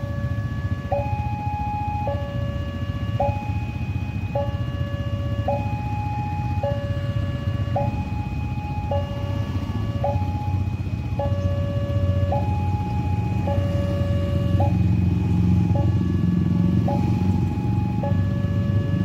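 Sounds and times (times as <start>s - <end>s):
level crossing two-tone alarm: 0.0s - 19.0s
motorcycle engines idling: 0.0s - 19.0s.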